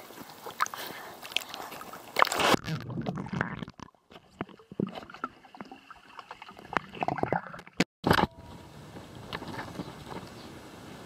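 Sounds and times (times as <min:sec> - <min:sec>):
underwater bubbling and knocks: 0:02.6 - 0:07.8.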